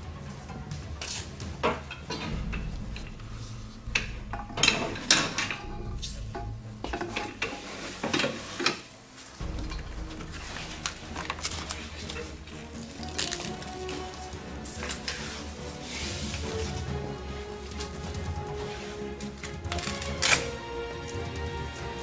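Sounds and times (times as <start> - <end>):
metal tubes clinking and clanking: 1.0 - 22.0.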